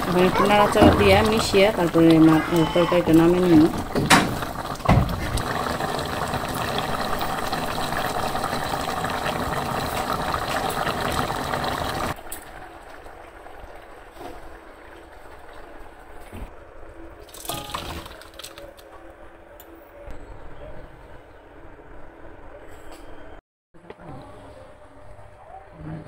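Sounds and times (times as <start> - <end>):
curry bubbling at a boil: 0.0 - 16.2.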